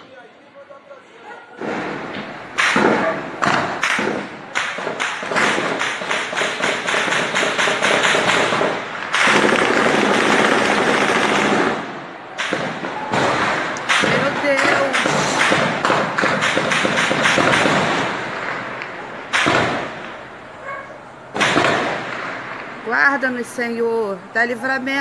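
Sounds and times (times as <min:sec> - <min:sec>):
automatic gunfire bursts: 0:02.6 - 0:18.3, 0:21.4 - 0:22.2.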